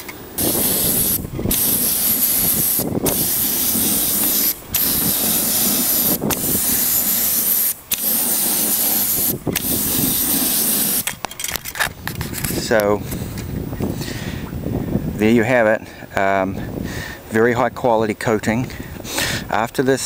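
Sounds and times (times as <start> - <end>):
spray gun hissing: 0.3 - 11.1.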